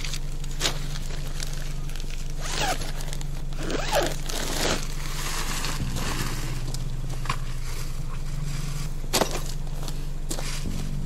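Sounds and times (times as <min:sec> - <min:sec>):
zipper being pulled: 0:02.4 - 0:03.0, 0:03.6 - 0:05.3.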